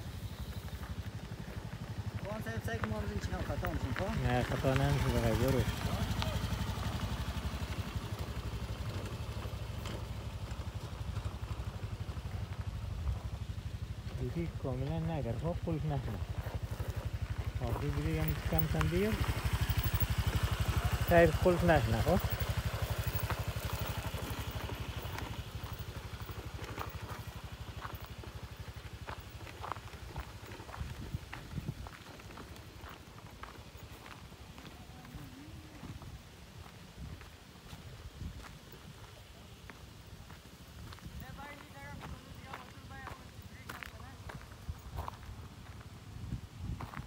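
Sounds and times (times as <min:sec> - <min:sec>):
motor scooter engine running: 0:00.0 - 0:36.3.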